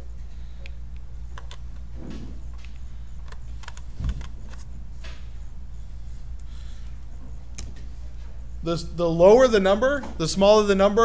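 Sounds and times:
camera lens clicks and scrapes: 3.2s - 4.7s.

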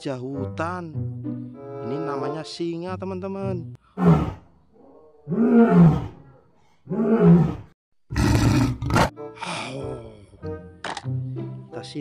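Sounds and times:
lion roaring: 4.0s - 9.1s.

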